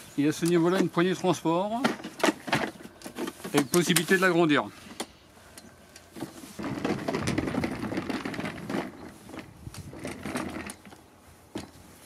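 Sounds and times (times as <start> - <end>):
plastic wheels rolling over boards: 6.1 - 11.9.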